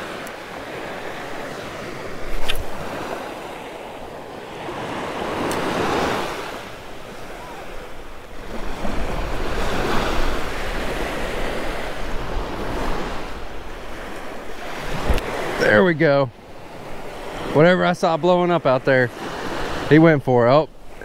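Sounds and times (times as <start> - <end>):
wind on microphone: 0.0 - 15.5
small surf breaking on sand: 0.0 - 15.9.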